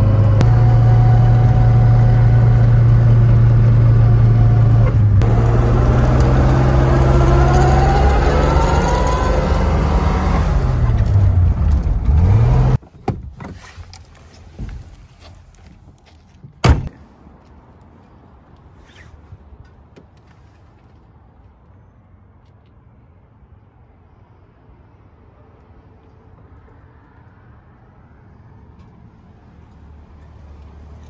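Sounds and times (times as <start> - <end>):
car engine running: 0.0 - 12.8.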